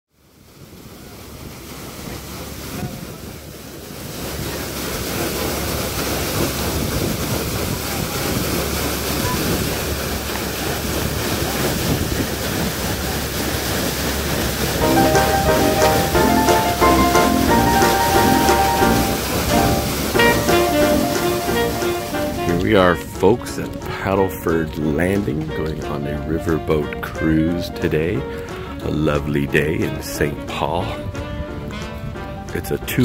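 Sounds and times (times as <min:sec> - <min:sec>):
paddle wheel splashing through water: 0:00.4 - 0:30.3
wind on microphone: 0:05.6 - 0:14.5.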